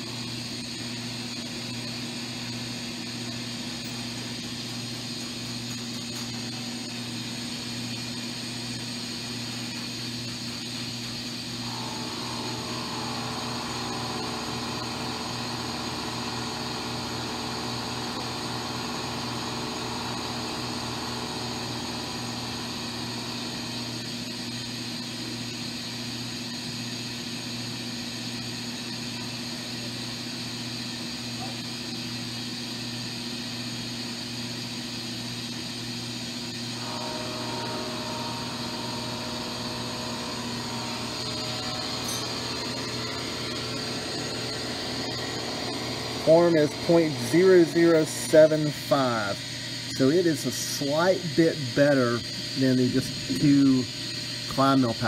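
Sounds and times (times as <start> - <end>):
machine mechanical hum: 0.0 - 55.0
higher whine: 36.6 - 52.0.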